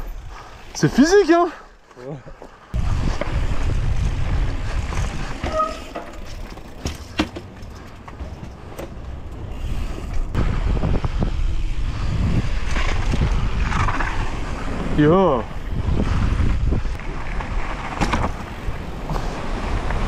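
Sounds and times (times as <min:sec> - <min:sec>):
bike knocks and rattles: 0:02.3 - 0:10.4, 0:17.0 - 0:20.0
wind rushing over microphone: 0:02.7 - 0:05.6, 0:09.6 - 0:20.0.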